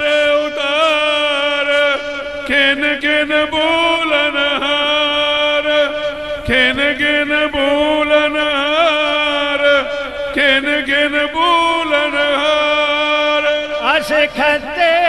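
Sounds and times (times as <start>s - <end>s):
steady held drone: 0.0s - 15.0s.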